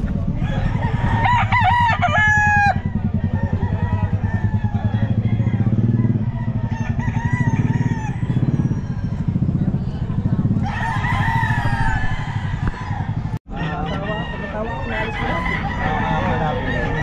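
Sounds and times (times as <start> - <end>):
engine idling: 0.0 - 13.4
rooster crowing: 0.3 - 9.5, 10.5 - 17.0.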